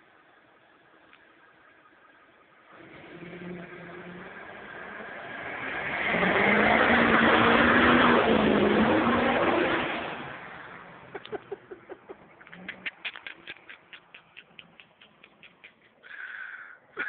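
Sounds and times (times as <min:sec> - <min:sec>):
diesel truck driving off: 0:02.6 - 0:11.2.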